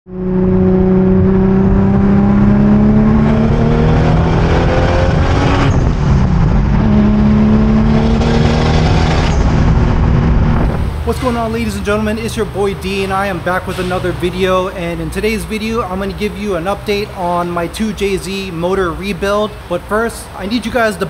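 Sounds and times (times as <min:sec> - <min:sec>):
car engine accelerating hard: 0:00.1 - 0:12.6.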